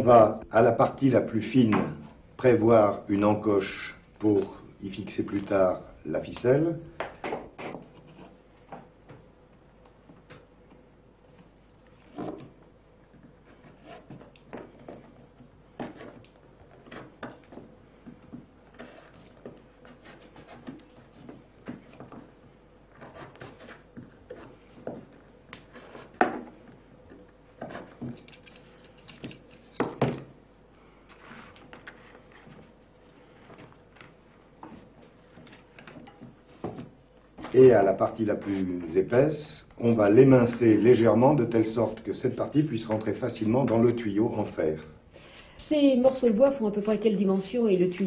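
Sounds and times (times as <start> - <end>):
knife scraping wood: 7.3 - 8.7, 13.1 - 17.4, 18.6 - 22.0, 22.9 - 26.2, 27.6 - 29.2.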